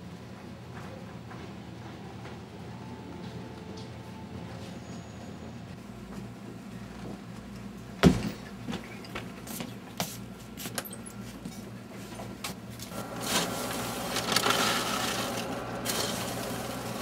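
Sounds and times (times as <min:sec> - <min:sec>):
scoop scraping through popcorn: 0:12.9 - 0:17.0.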